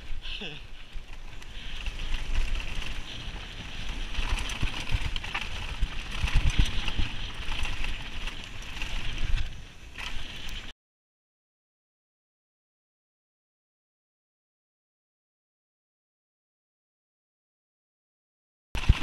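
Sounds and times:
bike tyres rushing hiss: 0.0s - 4.6s, 6.0s - 10.7s
bike knocking and rattling: 0.0s - 10.7s, 18.8s - 19.0s.

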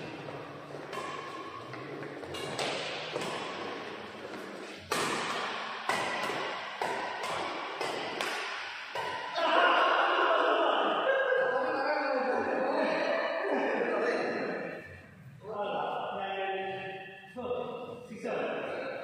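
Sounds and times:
rackets hitting shuttlecock: 0.0s - 9.4s.

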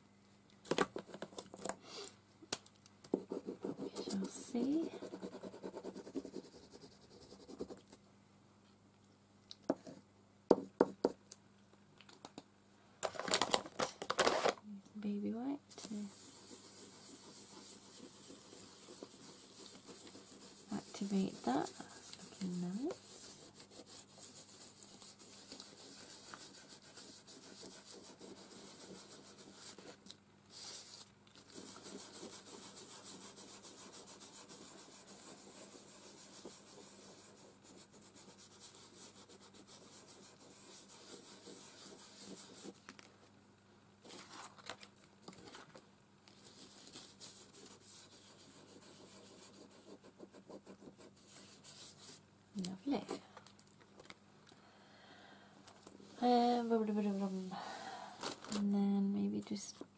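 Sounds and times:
wipe rubbing on paper: 15.9s - 42.8s, 46.4s - 52.2s.

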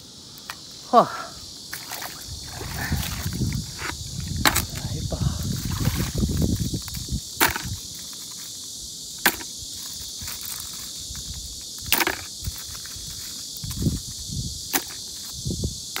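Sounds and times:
steady high hiss: 0.0s - 16.0s
oyster shells clacking in bucket: 3.8s - 4.8s.

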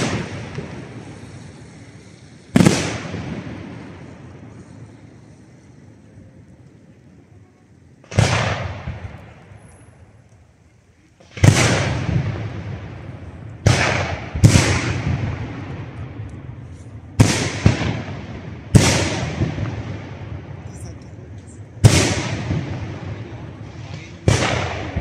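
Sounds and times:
firework shells bursting: 0.0s - 5.6s
rolling echo: 0.0s - 25.0s.

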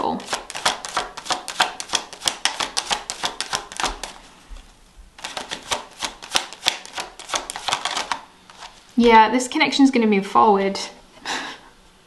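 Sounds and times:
cards being shuffled: 0.1s - 8.9s.

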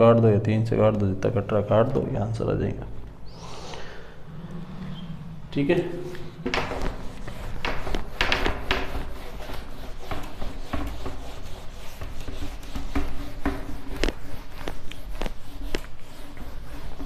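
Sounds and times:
duster wiping whiteboard: 5.0s - 17.0s.

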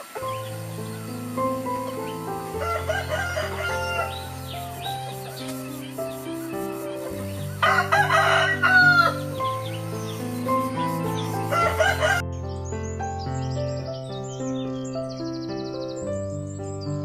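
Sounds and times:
background music: 0.0s - 17.0s
rooster crowing: 2.0s - 5.3s, 7.3s - 9.5s, 11.4s - 12.2s.

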